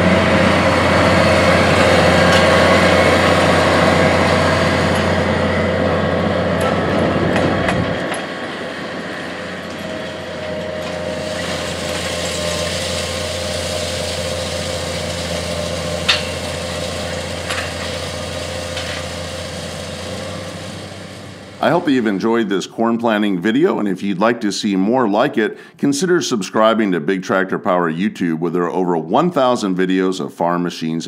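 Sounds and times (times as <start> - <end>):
tractor diesel engine running: 0.0 - 24.3.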